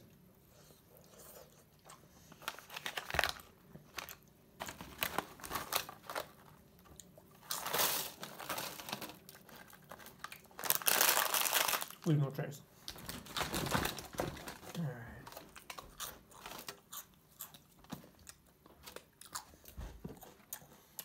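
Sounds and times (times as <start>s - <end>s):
plastic pouches crinkling: 2.3s - 12.2s, 12.9s - 18.1s.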